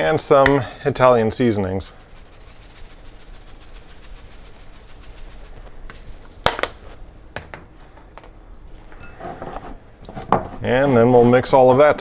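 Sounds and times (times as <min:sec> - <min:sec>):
seasoning shaker ticking: 0:01.3 - 0:06.4
shaker clicks and knocks: 0:01.9 - 0:06.8.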